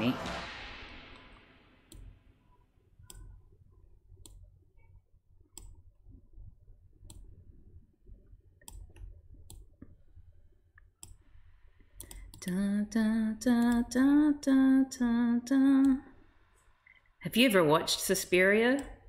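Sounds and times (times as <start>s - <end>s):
low room hum: 0.0s - 19.0s
computer mouse clicks: 5.5s - 5.8s, 7.0s - 7.4s, 8.6s - 10.0s, 11.0s - 11.3s, 12.0s - 12.6s.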